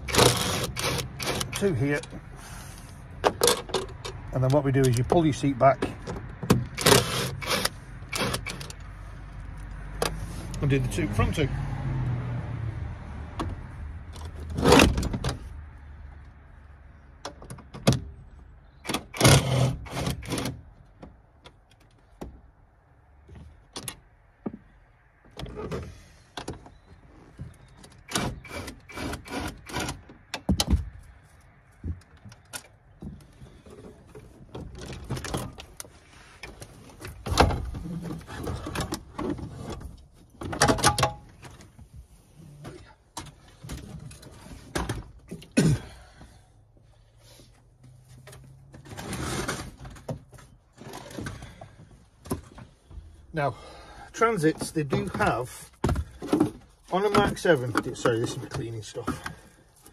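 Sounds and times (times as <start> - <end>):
sharp metallic clicks and clunks: 0.0 - 2.2, 3.2 - 8.9, 18.8 - 22.4, 34.1 - 41.7.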